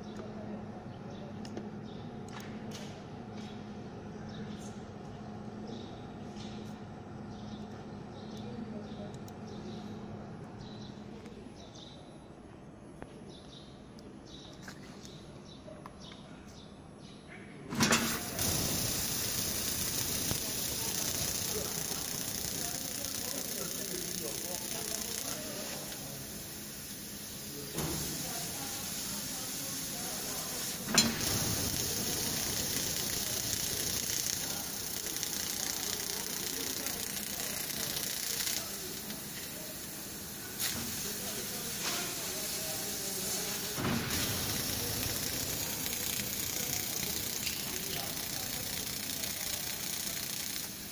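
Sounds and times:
machine room background: 0.0s - 50.9s
loud gas hiss: 17.9s - 50.9s.

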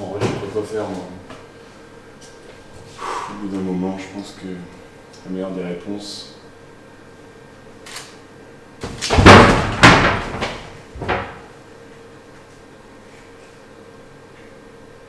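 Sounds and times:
body thudding on floor: 8.8s - 11.5s.

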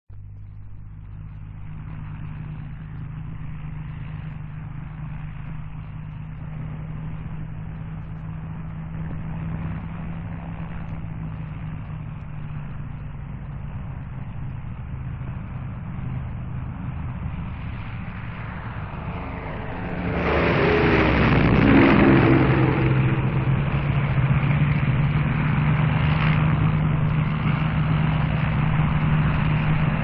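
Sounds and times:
propeller aircraft engines droning: 0.1s - 30.0s.

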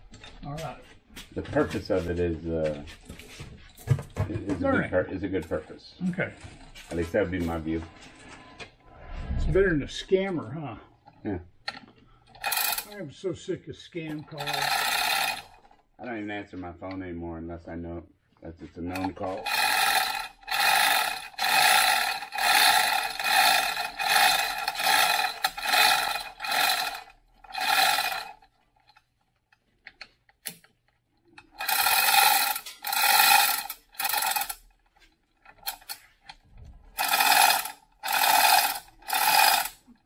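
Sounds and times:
chain hoist ratchet clicking: 11.7s - 13.0s, 14.1s - 15.8s, 18.9s - 29.1s, 31.4s - 36.4s, 37.0s - 40.0s.

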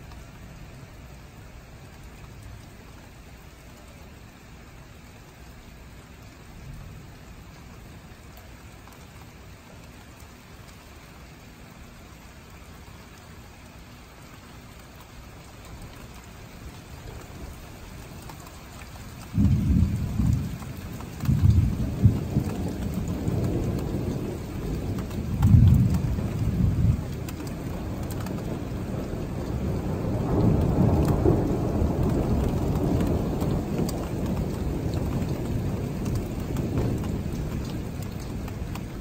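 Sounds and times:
steady rain: 0.0s - 39.0s
thunder cracking and rumbling: 19.2s - 39.0s.

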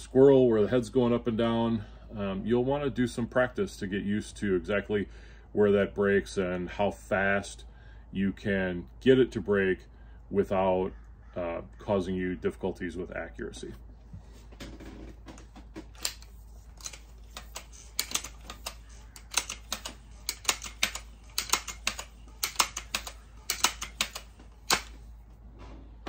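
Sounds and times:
air rifle mechanism clicks: 15.9s - 25.1s.

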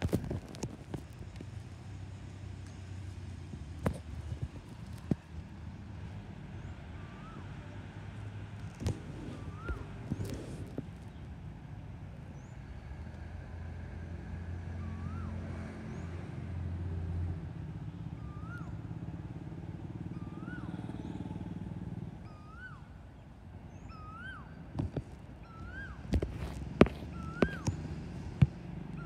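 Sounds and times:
bird call: 22.2s - 22.9s.

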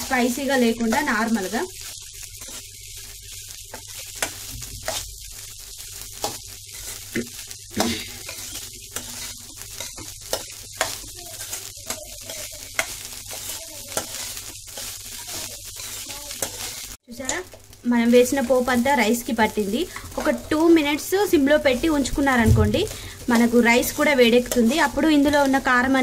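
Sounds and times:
steady sizzle: 0.0s - 26.0s
spoon scraping rice in pan: 7.7s - 17.0s.

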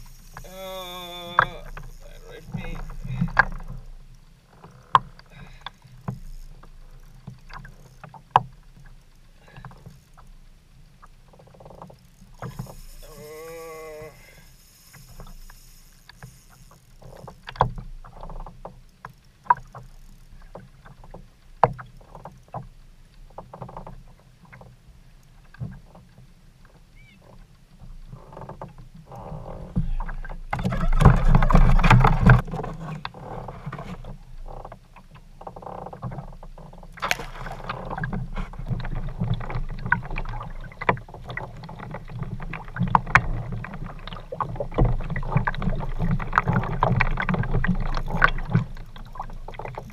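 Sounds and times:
wind: 0.0s - 49.9s
small clicks: 14.0s - 23.7s
water wash: 37.0s - 49.9s.

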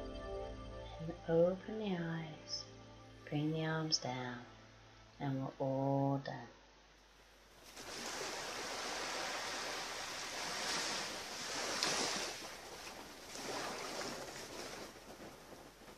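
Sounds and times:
small waves lapping on beach: 7.6s - 15.9s.

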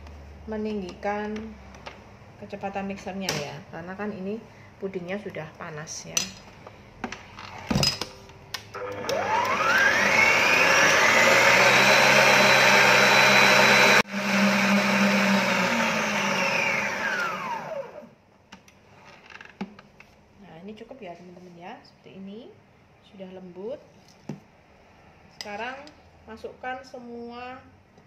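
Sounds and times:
stand mixer motor whining: 8.8s - 18.1s.

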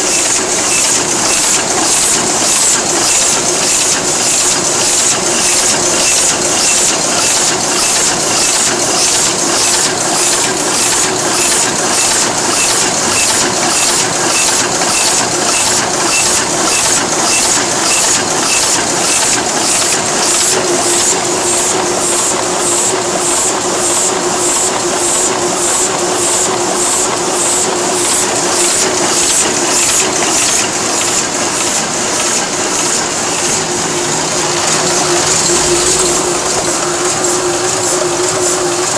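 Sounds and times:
printing press clatter: 0.0s - 38.9s
steady hum: 18.9s - 38.9s.

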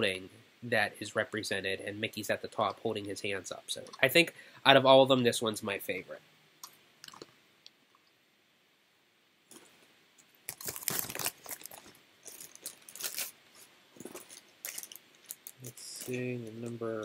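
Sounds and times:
rustling: 9.5s - 17.0s.

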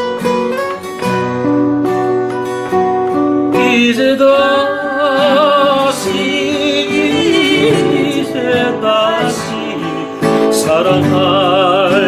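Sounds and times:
strummed acoustic guitars: 0.0s - 12.0s
man and woman singing duet: 3.6s - 12.0s.

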